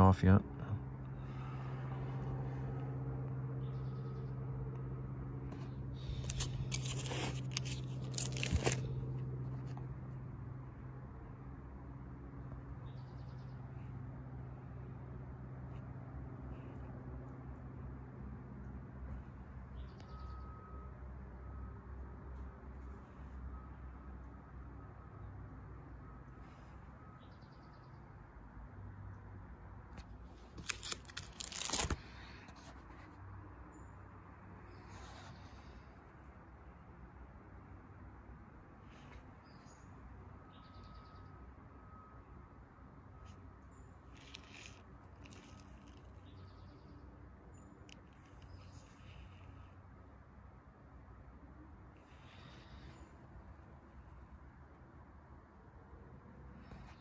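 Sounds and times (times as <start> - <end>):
low hum: 0.0 - 27.0
faint low hum: 0.0 - 57.0
plastic page turning crinkle: 6.0 - 9.8, 30.4 - 32.9, 44.1 - 46.4.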